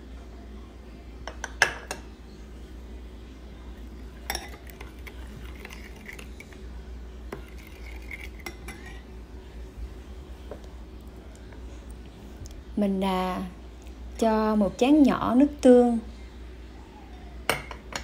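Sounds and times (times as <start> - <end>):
metal spoon clinking ceramic bowl: 4.2 - 6.3.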